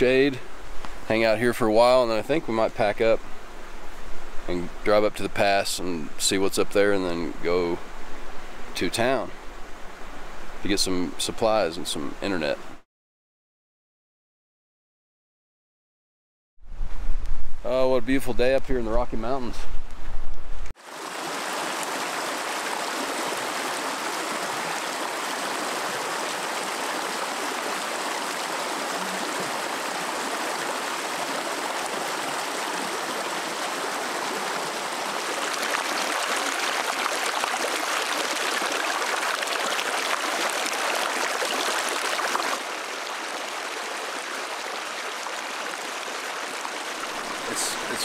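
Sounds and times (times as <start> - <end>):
stream rushing over rocks: 20.8 - 48.0.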